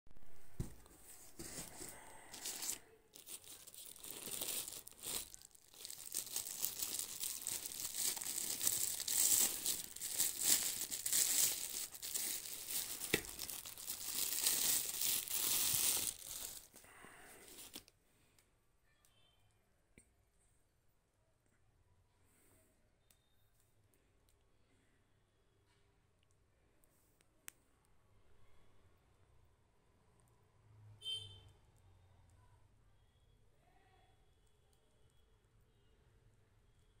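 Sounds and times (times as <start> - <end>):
crumpled newspaper rustling: 0.6 - 17.8
plastic bag crinkling: 0.6 - 17.9.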